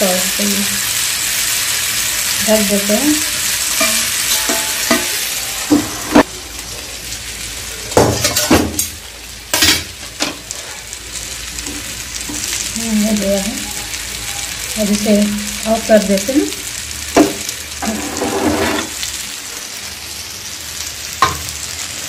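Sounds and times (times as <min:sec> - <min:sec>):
fish sizzling in oil: 0:00.0 - 0:22.0
metal lid and pan clanking: 0:03.7 - 0:06.2, 0:08.1 - 0:10.4, 0:17.2 - 0:19.0.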